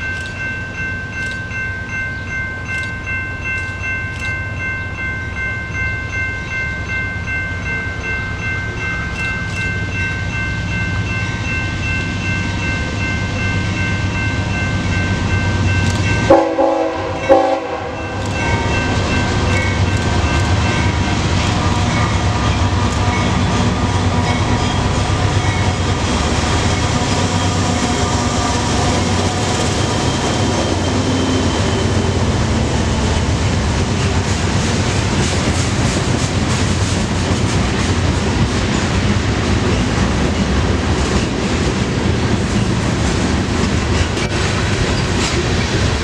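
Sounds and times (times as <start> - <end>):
train wheels rumbling on rail: 2.2 - 46.0
train horn blast: 16.3 - 18.8.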